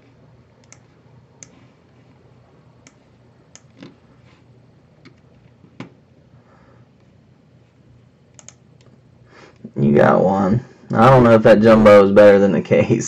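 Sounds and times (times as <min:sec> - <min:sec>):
keyboard and mouse clicks: 0:00.6 - 0:01.6, 0:02.8 - 0:04.0, 0:08.3 - 0:08.9.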